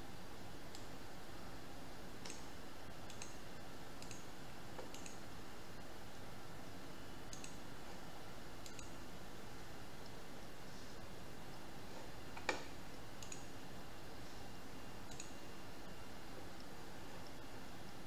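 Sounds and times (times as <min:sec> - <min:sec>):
computer mouse clicks: 0:00.7 - 0:00.9, 0:02.2 - 0:03.4, 0:04.0 - 0:05.2, 0:07.3 - 0:07.6, 0:08.6 - 0:09.0, 0:12.4 - 0:13.6, 0:15.0 - 0:15.4.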